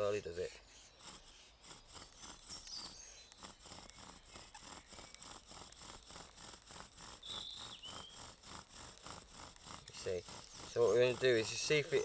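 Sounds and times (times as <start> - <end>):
bow drill rhythmic rasping: 0.0 - 12.0
bird chirp: 0.4 - 5.3, 7.2 - 8.3, 9.8 - 12.0.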